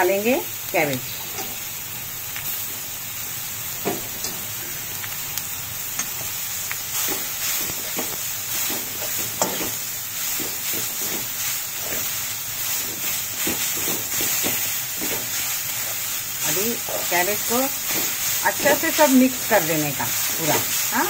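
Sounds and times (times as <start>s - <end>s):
cabbage sizzling in hot oil: 0.0s - 21.0s
steel spoon scraping a pan: 7.0s - 19.1s.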